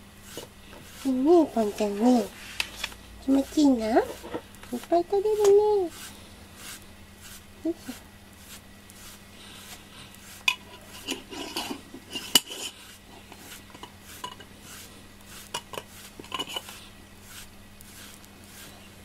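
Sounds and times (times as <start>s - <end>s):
brush scraping through fur: 0.0s - 19.0s.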